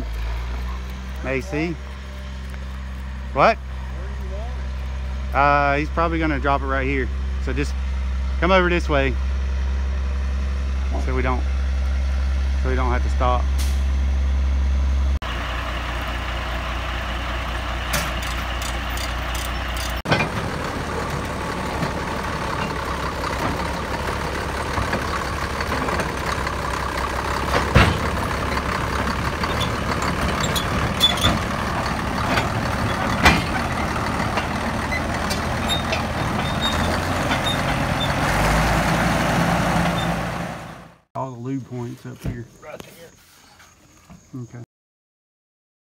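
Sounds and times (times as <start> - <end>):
bulldozer diesel engine running: 0.0 - 41.1
steel tracks clanking: 17.4 - 40.7.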